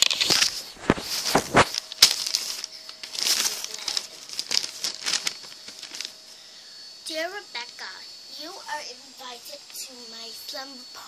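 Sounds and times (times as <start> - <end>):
paper rustling and crinkling: 0.0 - 6.3.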